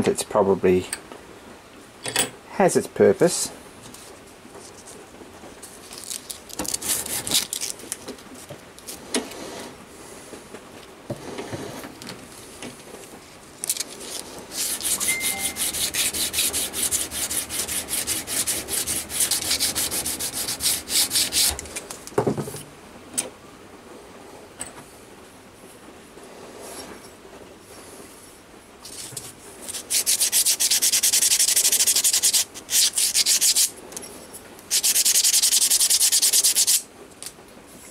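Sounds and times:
hand sanding metal plate: 14.5s - 21.6s, 29.7s - 33.7s, 34.7s - 36.8s.

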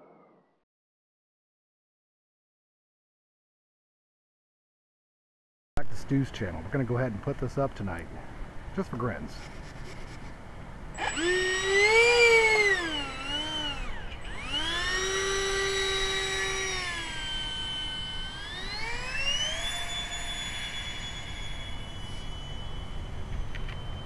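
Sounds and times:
electric ducted fan whining: 6.1s - 24.0s.

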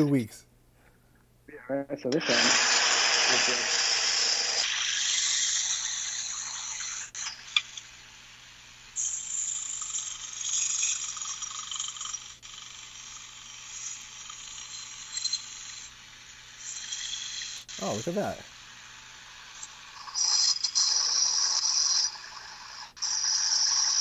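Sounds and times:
belt sander grinding steel: 2.3s - 4.7s.

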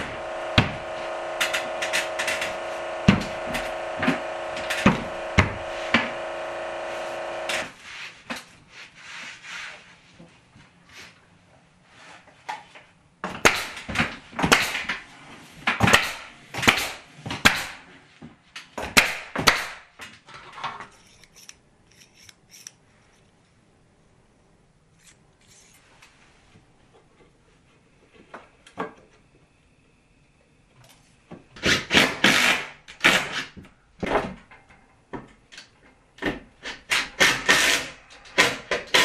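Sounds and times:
machine hum: 0.0s - 7.7s.

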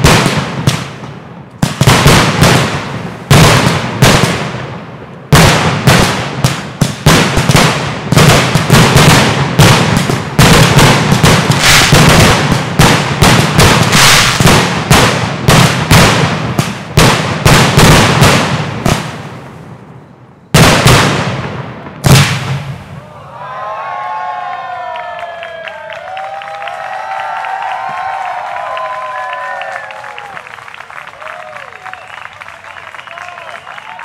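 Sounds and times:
firework shells bursting: 6.8s - 19.1s.

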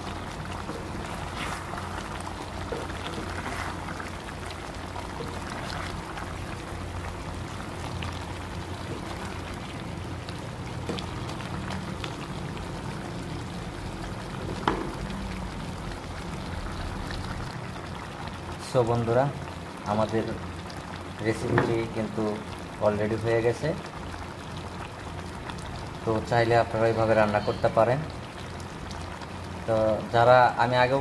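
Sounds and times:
spatula stirring gravy: 0.0s - 9.8s
curry bubbling in a pan: 0.0s - 31.0s.

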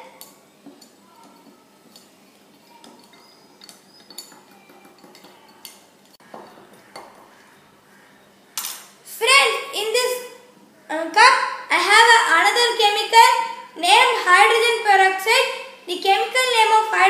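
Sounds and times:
chopstick clinking against glass bottle: 2.7s - 5.9s.

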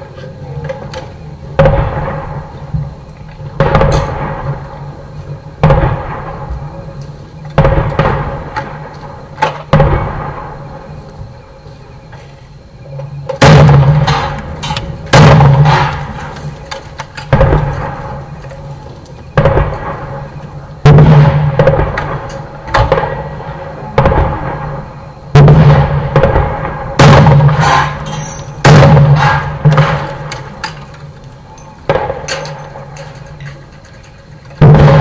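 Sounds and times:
gunshots with ringing echo: 13.4s - 18.7s, 19.3s - 30.6s, 34.6s - 35.0s.

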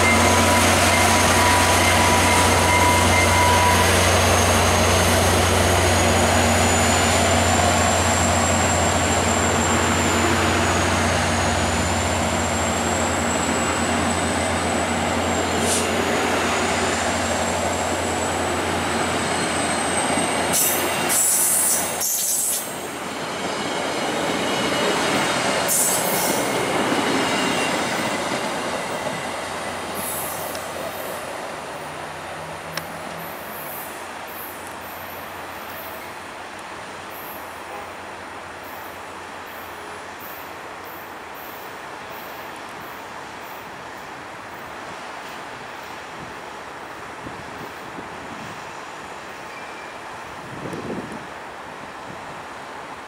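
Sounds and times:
high wheel squeal: 0.0s - 22.8s, 24.3s - 28.1s
diesel locomotive engine drone: 0.0s - 53.0s
rumble of train cars passing: 0.0s - 53.0s.

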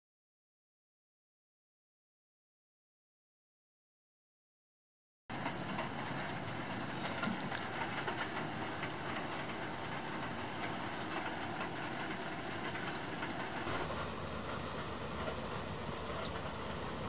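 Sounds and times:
steady rushing noise: 5.3s - 17.0s
faint clicks and taps: 7.0s - 9.6s.

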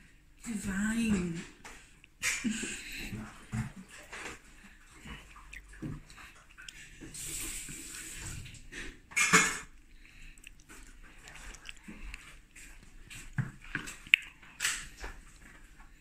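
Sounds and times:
cutlery scraping on a plate: 9.2s - 9.7s.

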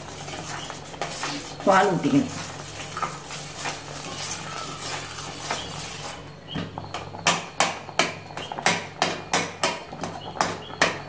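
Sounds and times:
metal spoon scraping steel pan: 0.0s - 6.2s.

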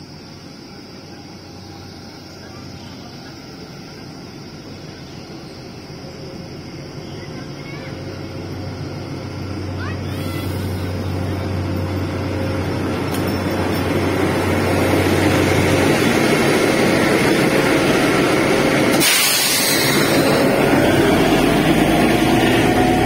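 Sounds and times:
diesel train passing: 0.0s - 23.0s
hiss of air: 18.8s - 20.4s.

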